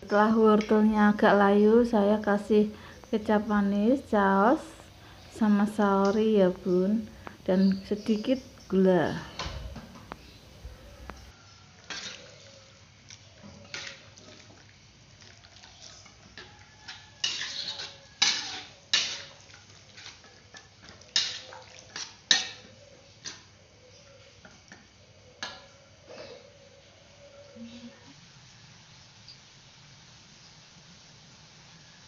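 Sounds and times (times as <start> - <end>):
metal spatula scraping a wok: 11.8 - 12.5, 13.4 - 14.4, 15.6 - 23.5.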